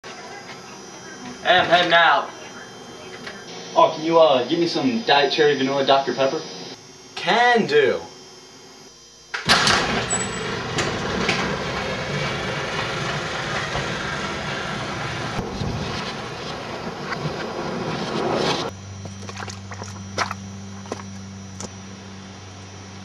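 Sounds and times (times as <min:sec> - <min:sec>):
garage door opener running: 0:09.3 - 0:15.6.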